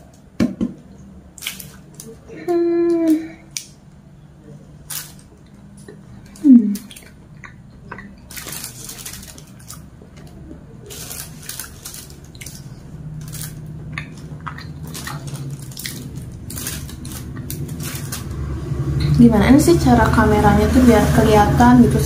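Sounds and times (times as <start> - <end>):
person humming mm: 2.3 - 3.5, 6.4 - 6.9
wet chewing and lip-smacking: 5.4 - 10.3, 11.3 - 18.2.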